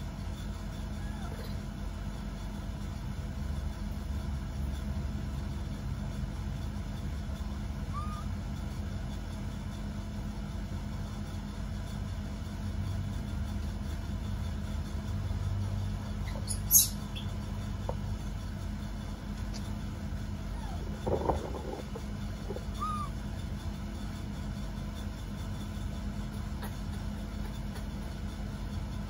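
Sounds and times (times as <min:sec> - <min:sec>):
faint hum: 0:00.0 - 0:29.0
low background rumble: 0:00.0 - 0:29.0
short rising squeak: 0:22.5 - 0:23.2.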